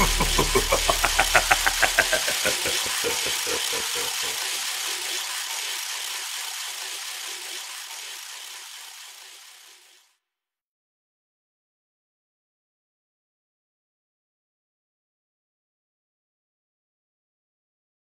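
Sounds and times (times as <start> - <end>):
band music with fast rhythmic pulse: 0.0 - 3.5
hissing wash: 0.0 - 10.0.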